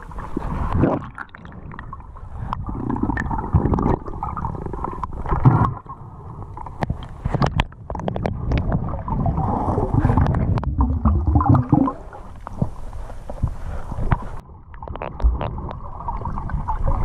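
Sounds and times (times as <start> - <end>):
underwater rumbling and gurgling: 0.0 - 17.0
sharp clicks underwater: 6.5 - 8.8, 10.0 - 15.9
water surge: 8.5 - 12.4.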